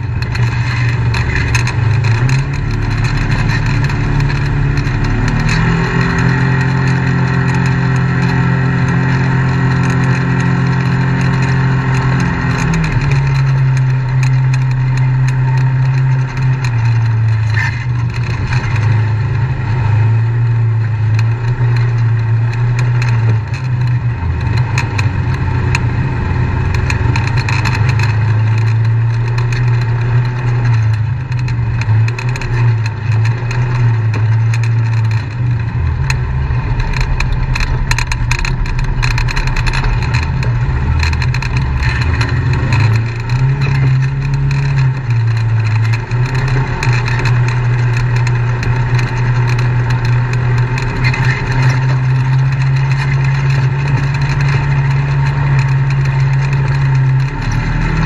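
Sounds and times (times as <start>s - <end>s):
knocks and rattles: 0.0s - 58.0s
off-road vehicle engine running: 0.0s - 58.0s.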